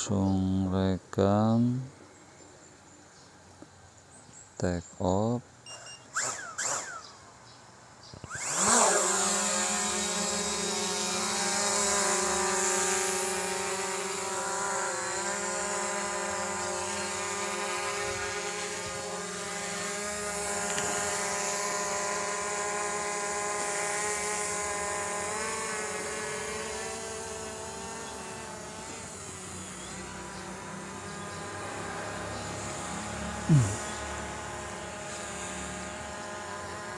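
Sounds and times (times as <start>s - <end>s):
drone propellers whining: 5.7s - 7.4s, 8.1s - 36.9s.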